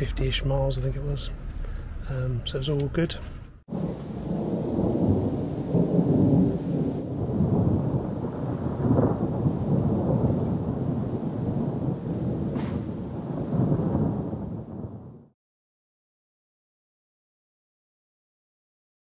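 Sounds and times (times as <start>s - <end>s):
rolling thunder: 3.6s - 15.4s.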